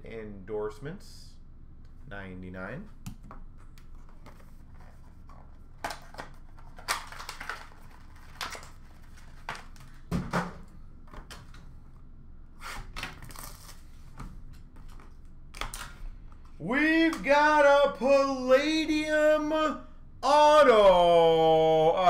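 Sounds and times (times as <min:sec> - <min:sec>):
plastic wrappers crinkling: 0:05.9 - 0:10.0.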